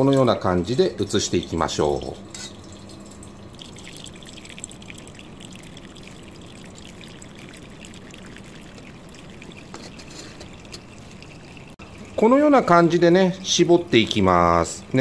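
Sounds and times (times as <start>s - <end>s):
liquid pouring and trickling: 0.1s - 15.0s.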